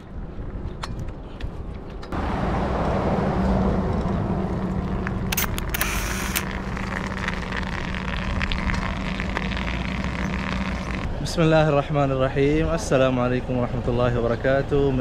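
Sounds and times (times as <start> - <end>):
bicycle tyres on rough dirt: 3.3 - 11.6.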